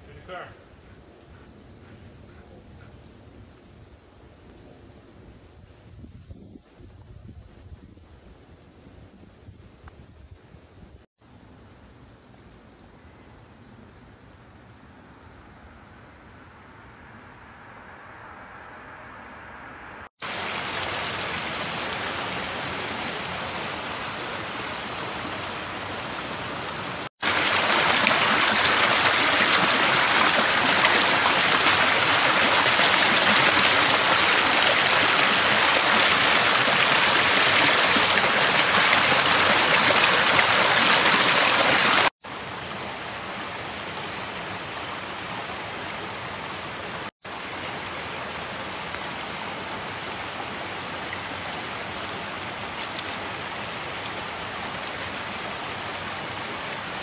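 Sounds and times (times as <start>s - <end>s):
creek rushing and splashing: 20.2s - 57.0s.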